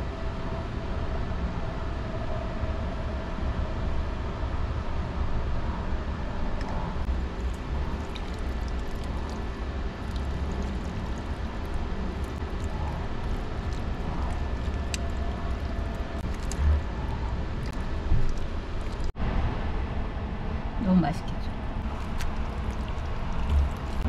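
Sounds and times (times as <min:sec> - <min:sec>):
electric fans blowing air: 0:00.0 - 0:24.0.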